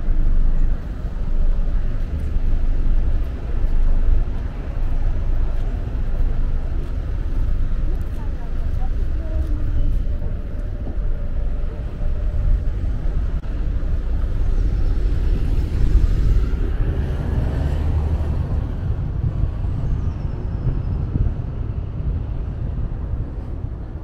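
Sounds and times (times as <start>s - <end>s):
road traffic rumble: 0.0s - 24.0s.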